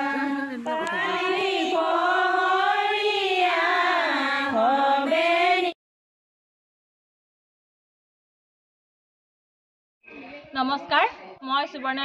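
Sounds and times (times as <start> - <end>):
women singing devotional chant: 0.0 - 5.8.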